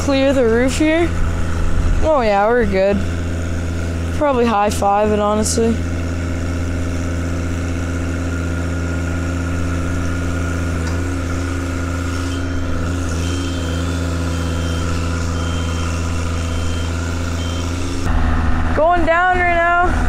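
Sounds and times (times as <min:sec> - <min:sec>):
power unit running: 0:00.0 - 0:20.0
short high alarm beeps: 0:12.4 - 0:17.8.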